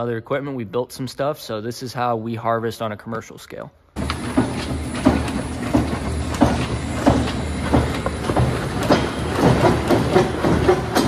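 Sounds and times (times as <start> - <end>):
machine humming: 4.0 - 11.0
rattling and knocking: 4.0 - 11.0.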